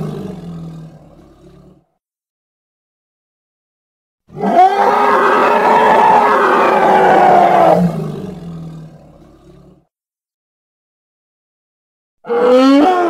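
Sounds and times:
elephant-like roar: 0.0 - 1.9, 4.3 - 9.9, 12.2 - 13.0.

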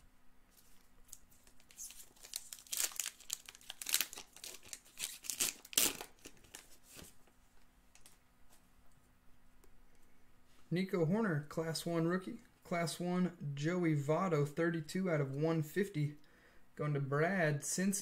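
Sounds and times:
wrapper tearing and crinkling: 0.6 - 7.0.

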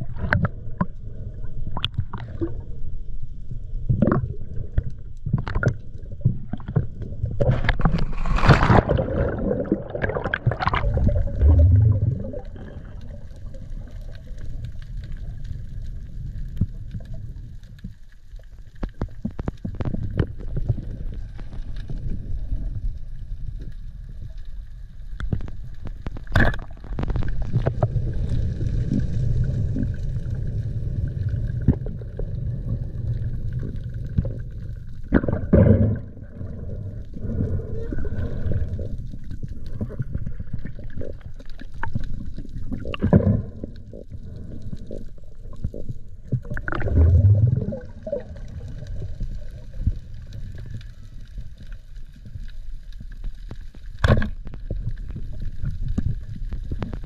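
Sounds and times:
underwater rumble and gurgling: 0.0 - 57.0
underwater clicks: 1.7 - 2.5, 3.9 - 13.2, 25.2 - 28.9, 38.2 - 50.9, 53.4 - 57.0
rush of water noise: 46.6 - 49.1.

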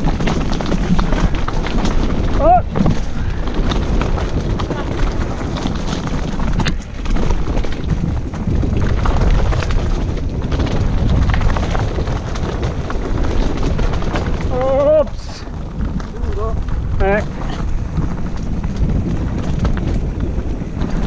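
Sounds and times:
bike tyres rolling over gravel: 0.0 - 21.0
wind buffeting microphone: 0.0 - 21.0.

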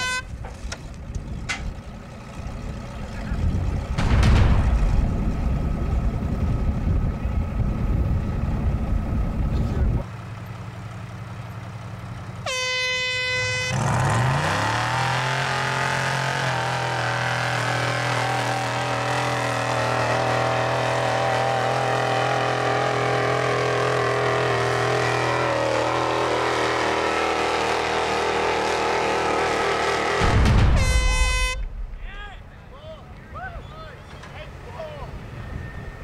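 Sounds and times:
steady horn blast: 0.0 - 0.4, 12.4 - 15.4, 23.8 - 32.0
buggy engine revving: 0.0 - 31.6.

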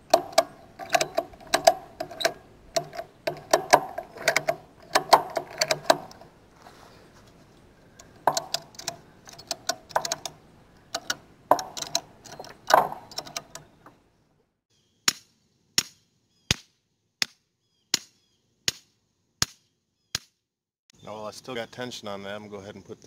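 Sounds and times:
hammer striking metal post: 0.0 - 6.2
ratchet strap clicking: 0.0 - 6.3, 8.0 - 13.7.

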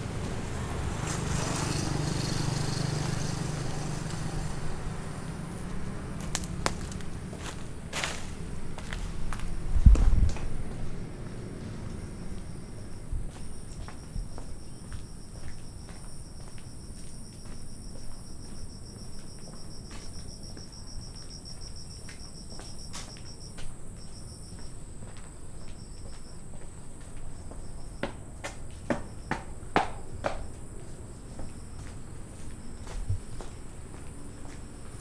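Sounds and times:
high steady insect drone: 0.0 - 35.0
insects trilling: 10.5 - 35.0.

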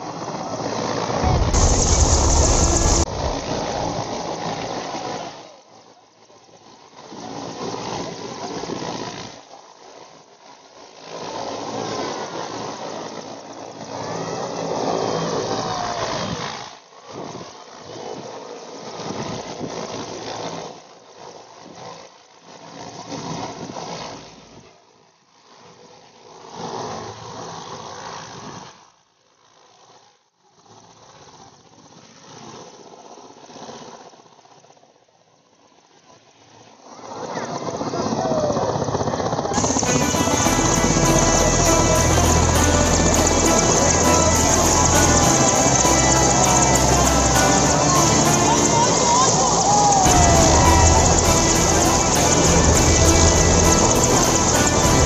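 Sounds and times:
helicopter rotor and engines: 0.1 - 5.1, 37.6 - 55.0.

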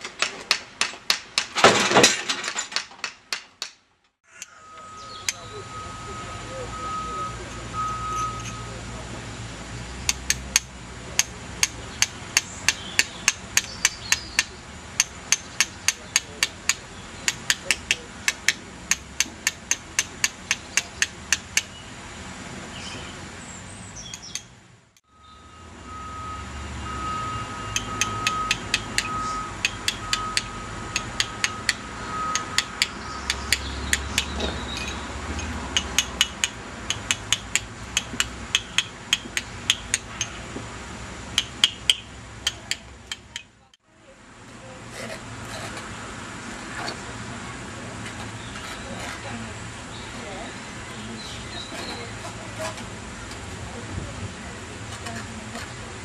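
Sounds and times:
chisel tapping stone: 10.1 - 21.7, 27.7 - 40.4, 41.4 - 43.5.

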